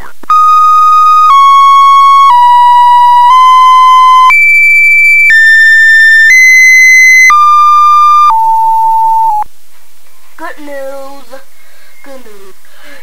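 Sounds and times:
buzzy synthesized electronic tones: 0:00.3 - 0:09.4.

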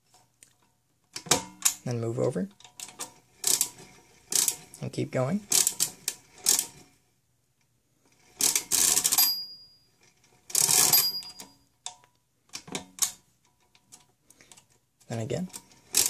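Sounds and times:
bell ding: 0:09.2 - 0:09.9, 0:10.9 - 0:11.6
calculator handle rattling: 0:10.6 - 0:11.5.

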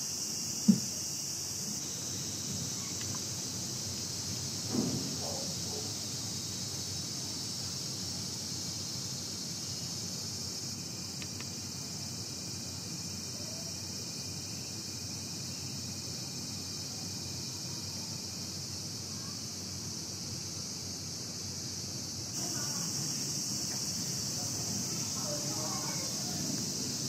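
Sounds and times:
insects shrilling: 0:00.0 - 0:27.0.

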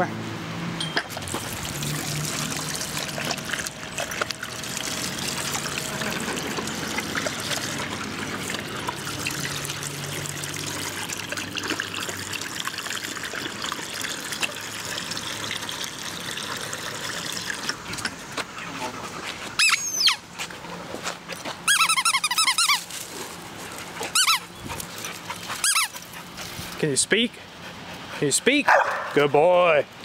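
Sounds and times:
water spraying into steel basin: 0:01.1 - 0:17.8
dog lapping water: 0:01.1 - 0:19.6, 0:23.8 - 0:26.8.

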